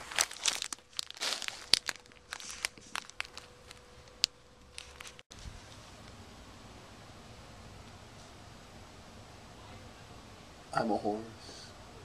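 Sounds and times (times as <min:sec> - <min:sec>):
plastic wrapping crinkling: 0:00.0 - 0:05.8.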